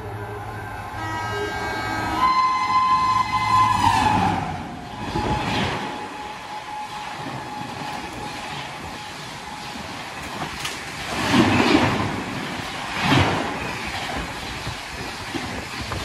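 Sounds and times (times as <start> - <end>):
train wheels rushing on rails: 0.0 - 16.0
train clatter: 3.6 - 16.0.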